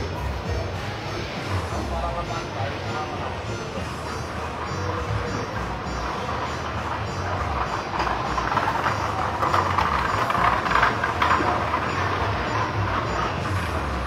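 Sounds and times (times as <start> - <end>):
low engine rumble with hiss: 0.0 - 14.0.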